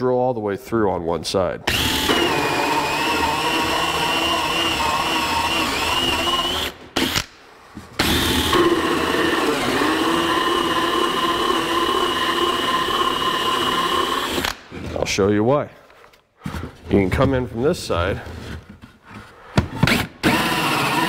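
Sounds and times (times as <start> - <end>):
cordless drill cutting wood: 1.7 - 7.3, 8.0 - 14.6, 19.8 - 21.0.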